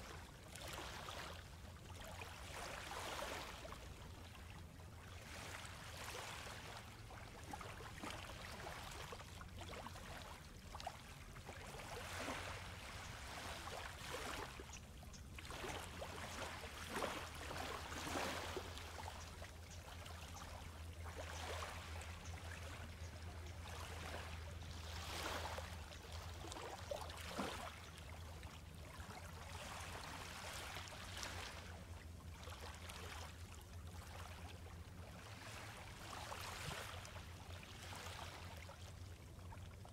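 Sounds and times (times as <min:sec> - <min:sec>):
waves lapping on sandy beach: 0:00.0 - 0:39.1.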